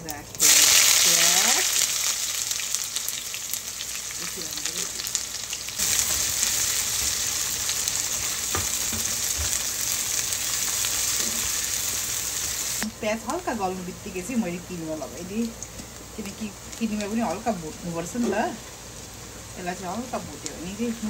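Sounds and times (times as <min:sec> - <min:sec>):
onions sizzling in hot oil: 0:00.0 - 0:21.0.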